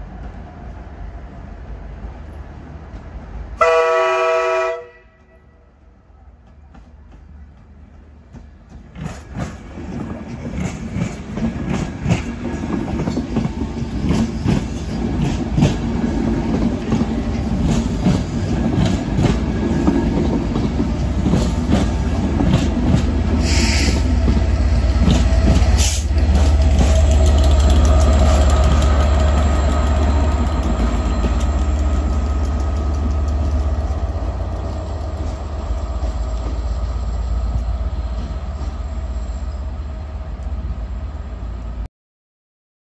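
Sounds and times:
diesel locomotive engine drone: 0:00.0 - 0:41.9
train wheels clacking over rail joints: 0:06.4 - 0:38.8
brief hiss: 0:23.4 - 0:24.1.

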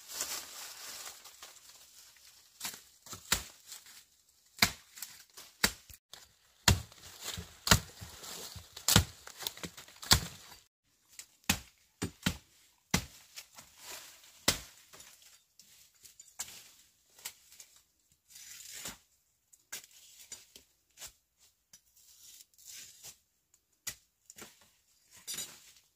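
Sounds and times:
blade chopping strikes: 0:08.8 - 0:10.5.

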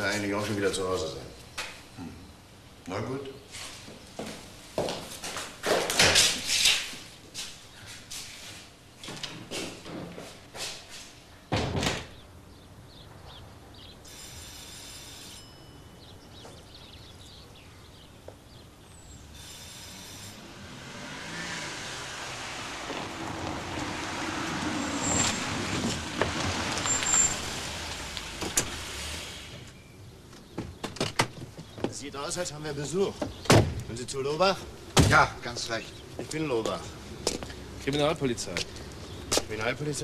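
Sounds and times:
wooden door thudding shut: 0:11.5 - 0:12.2, 0:33.4 - 0:33.8
car driving up and stopping: 0:20.3 - 0:30.0
brake squeak: 0:24.8 - 0:30.0.

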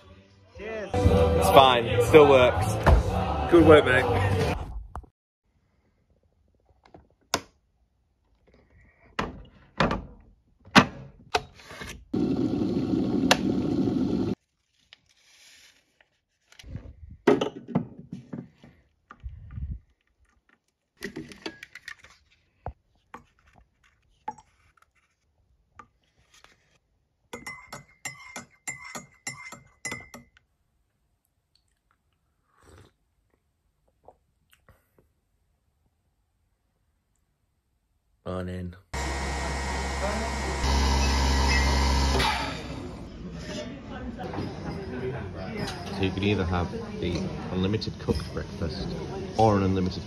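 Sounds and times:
teaspoon clinking against a mug: 0:27.4 - 0:30.4.

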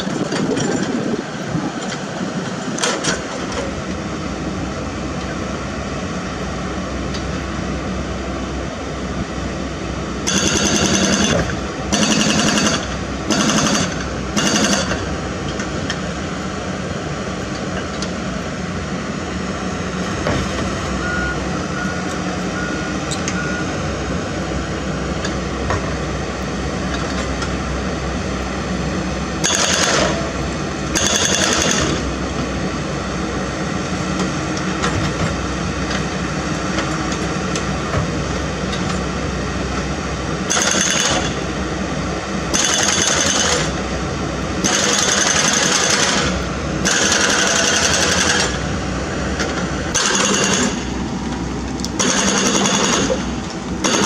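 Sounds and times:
excavator engine running: 0:00.0 - 0:54.0
hydraulic breaker hammering rock: 0:10.3 - 0:15.1, 0:29.4 - 0:32.0, 0:40.5 - 0:41.4, 0:42.5 - 0:43.8, 0:44.6 - 0:48.6, 0:49.9 - 0:50.9, 0:52.0 - 0:54.0.

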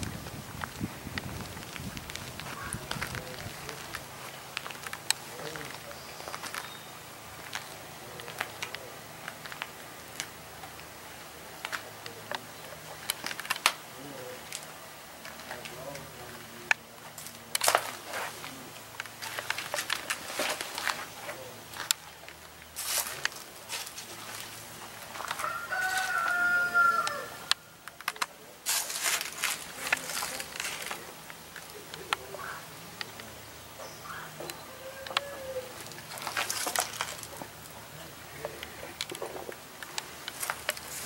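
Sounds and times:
rooster crowing: 0:25.3 - 0:27.5, 0:34.0 - 0:35.8.

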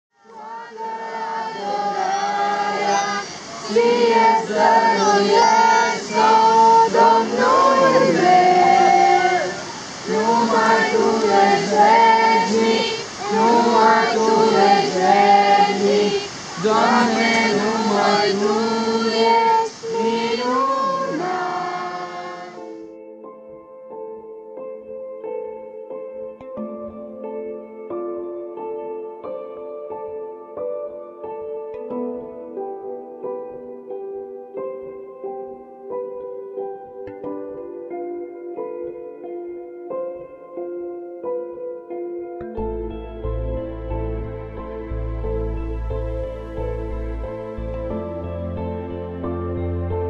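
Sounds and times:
group of voices singing: 0:00.2 - 0:22.9.

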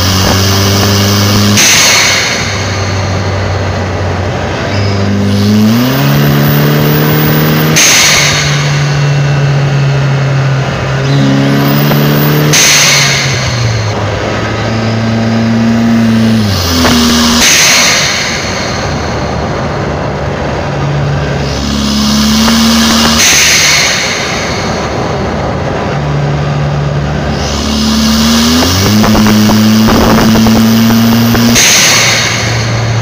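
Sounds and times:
car engine under throttle: 0:00.0 - 0:33.0
blow-off valve hiss: 0:16.4 - 0:19.1, 0:21.4 - 0:25.0, 0:27.3 - 0:33.0
turbo whistle: 0:27.3 - 0:32.8.

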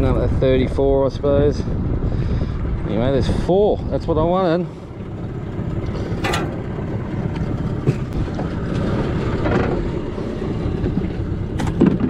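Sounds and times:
wind on microphone: 0:00.0 - 0:12.0
outboard motor idling: 0:04.7 - 0:12.0
light knocks and rattles: 0:05.7 - 0:08.2.

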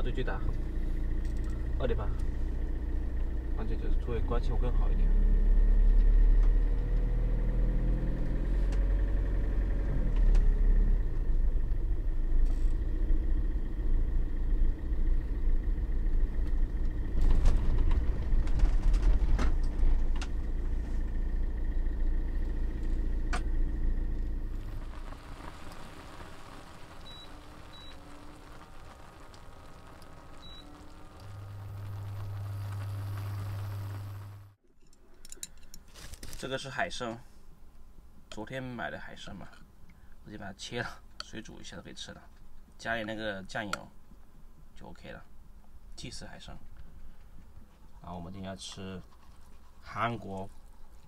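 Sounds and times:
steady low hum: 0:00.0 - 0:07.5, 0:08.3 - 0:35.8
engine and road rumble: 0:00.0 - 0:34.6, 0:35.2 - 0:51.0.

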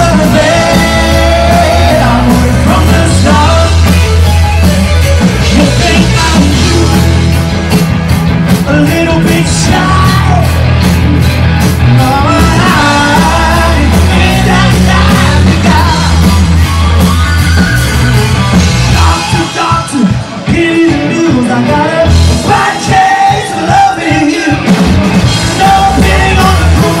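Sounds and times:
man singing: 0:00.0 - 0:04.0, 0:05.4 - 0:07.4, 0:08.5 - 0:10.6, 0:11.9 - 0:16.3, 0:18.9 - 0:24.8, 0:25.4 - 0:27.0
bass guitar: 0:00.0 - 0:27.0
drums: 0:00.0 - 0:27.0
electric guitars: 0:00.0 - 0:27.0.

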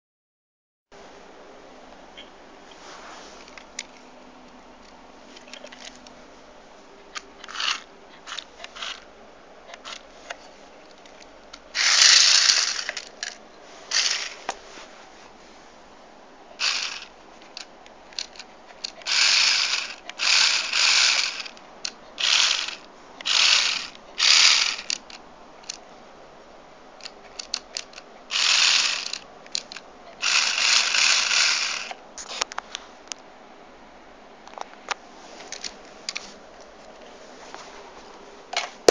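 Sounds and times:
small electric motor whirring: 0:07.4 - 0:09.0, 0:11.7 - 0:13.1, 0:13.9 - 0:14.5, 0:16.6 - 0:17.1, 0:19.0 - 0:21.6, 0:22.2 - 0:25.1, 0:27.9 - 0:32.0.

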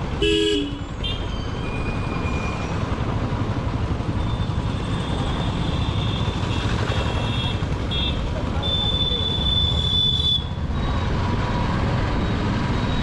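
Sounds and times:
vehicle horn: 0:00.2 - 0:01.2.

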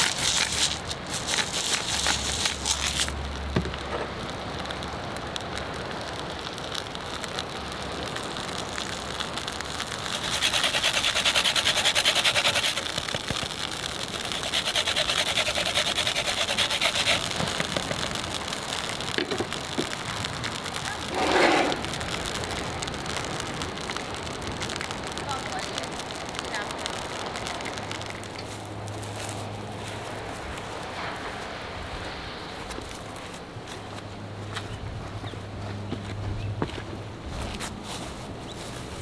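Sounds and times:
lemon rasping on grater: 0:00.0 - 0:03.1, 0:10.2 - 0:12.9, 0:14.2 - 0:17.3
wind: 0:00.0 - 0:39.0
surf: 0:06.6 - 0:33.5.

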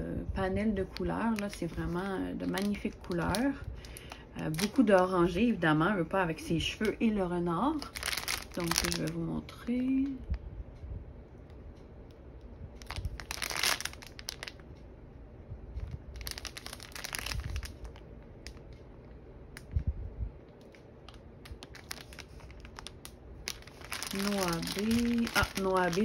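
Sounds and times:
plastic sachets crinkling: 0:00.8 - 0:05.6, 0:06.4 - 0:09.3, 0:12.8 - 0:14.6, 0:15.9 - 0:18.7, 0:20.5 - 0:26.0.

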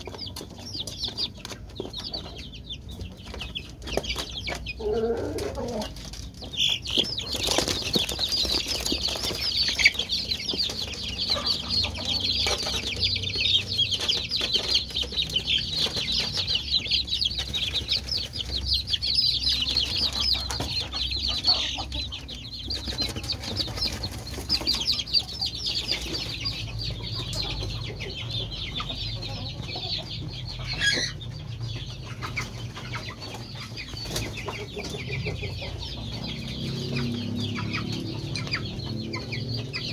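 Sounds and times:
chicks peeping: 0:00.0 - 0:39.9
wing flapping and scuffling: 0:03.1 - 0:11.7.

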